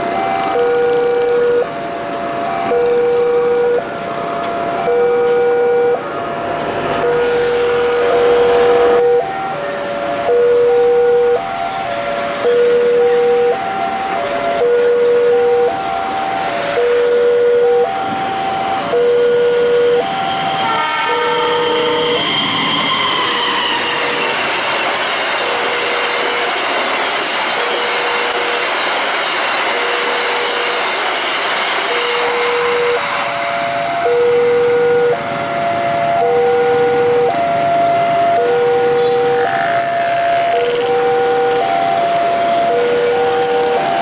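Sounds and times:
level crossing warning chime: 0.0s - 23.7s, 31.9s - 44.0s
train wheels on rails: 0.0s - 44.0s
train horn: 4.8s - 6.1s, 7.1s - 16.0s, 16.7s - 24.4s, 27.6s - 28.6s, 31.9s - 44.0s.

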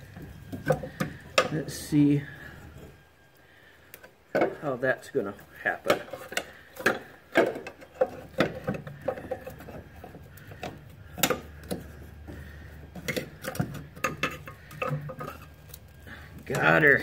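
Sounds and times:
metal clunks clicks and scraping knocks: 0.0s - 1.6s, 3.9s - 4.6s, 5.8s - 17.0s.

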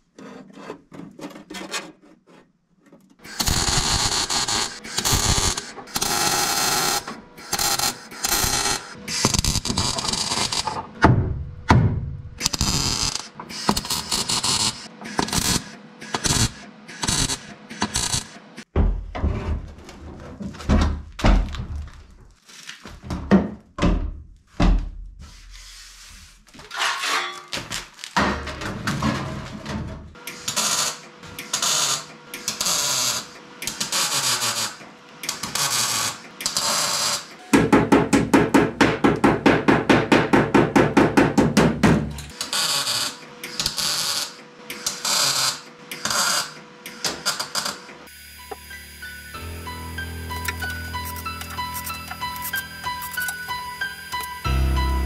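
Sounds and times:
mig welder crackling: 3.2s - 10.9s, 12.4s - 18.4s, 50.3s - 53.5s.

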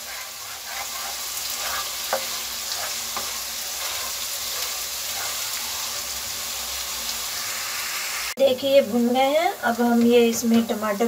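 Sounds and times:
spatula tapping and scraping pan: 0.0s - 5.9s
food sizzling in hot oil: 0.0s - 11.0s.

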